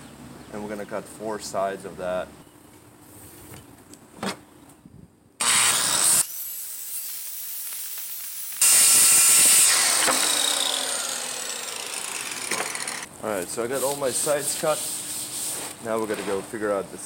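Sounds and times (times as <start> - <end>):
circular saw cutting plywood: 5.4 - 13.1.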